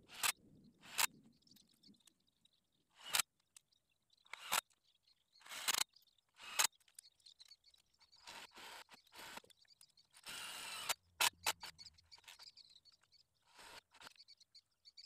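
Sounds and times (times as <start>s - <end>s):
sharp short clicks: 0.1s - 1.2s, 3.0s - 3.3s, 4.3s - 4.8s, 5.4s - 7.1s, 8.1s - 12.6s.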